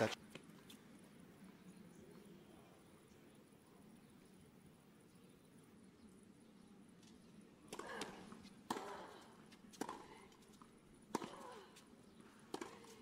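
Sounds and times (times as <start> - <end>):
racket striking tennis ball: 7.7 - 10.1, 12.5 - 13.0.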